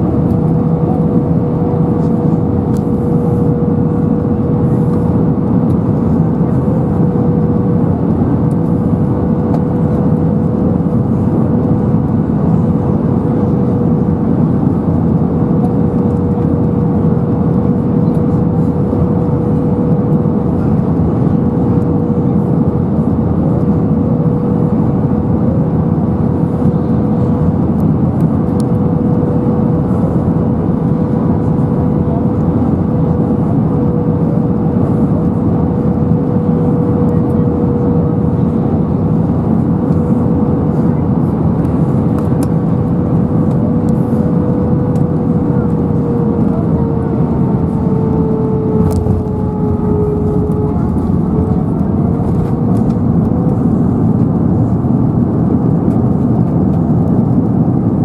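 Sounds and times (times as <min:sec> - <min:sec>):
airflow and jet engine roar: 0:00.0 - 0:58.0
steady hum: 0:00.0 - 0:58.0.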